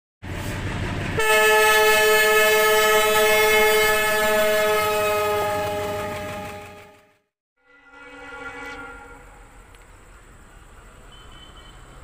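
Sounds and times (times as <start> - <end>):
locomotive air horn blast: 1.2 - 9.7.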